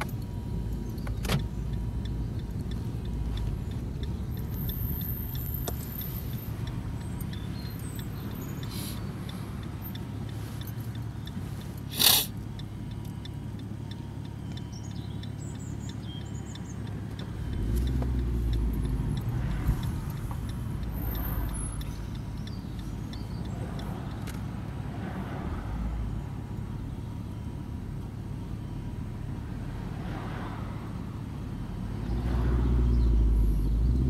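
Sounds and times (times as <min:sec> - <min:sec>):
car engine and tyre rumble: 0:00.0 - 0:34.0
short loud hiss: 0:11.9 - 0:12.3.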